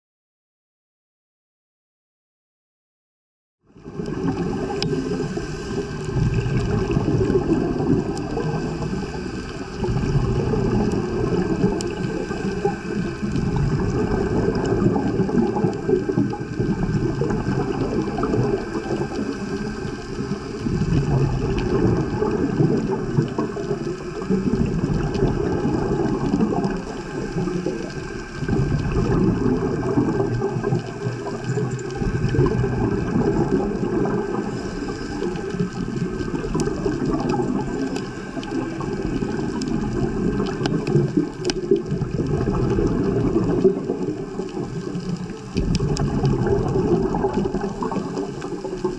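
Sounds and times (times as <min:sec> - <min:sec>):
underwater rumble and gurgling: 0:03.6 - 0:48.9
faint clicks: 0:04.0 - 0:05.0, 0:34.6 - 0:48.9.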